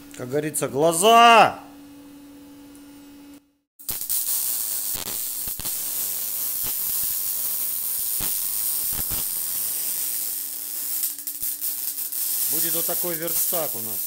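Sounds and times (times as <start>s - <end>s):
arc welding crackling hiss: 3.8s - 14.0s.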